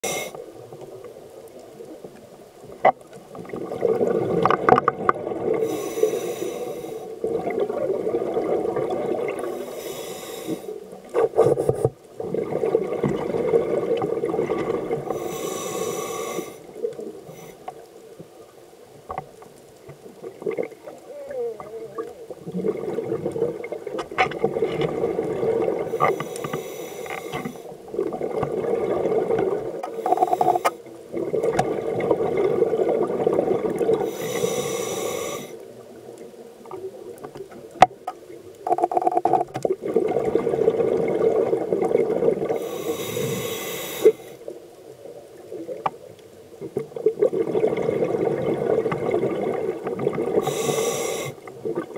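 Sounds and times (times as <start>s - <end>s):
exhaled bubbles rushing: 3.3s - 5.6s, 7.2s - 9.6s, 12.2s - 15.2s, 20.2s - 21.0s, 21.6s - 26.0s, 27.9s - 29.8s, 31.1s - 34.1s, 39.0s - 42.6s, 46.8s - 50.4s, 51.5s - 51.9s.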